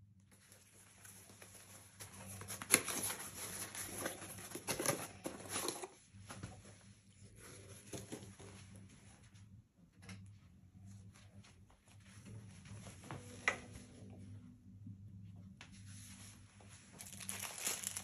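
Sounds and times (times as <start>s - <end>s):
handling rustling: 16.9s - 18.0s.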